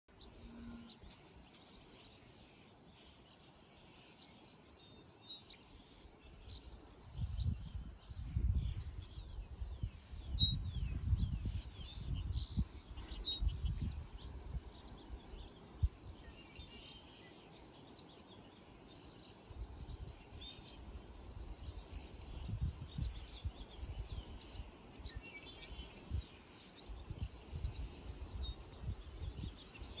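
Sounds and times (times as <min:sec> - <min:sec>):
faint steady hiss: 0:00.1 - 0:30.0
small birds chirping: 0:00.1 - 0:30.0
wind buffeting microphone: 0:06.6 - 0:16.4, 0:19.5 - 0:30.0.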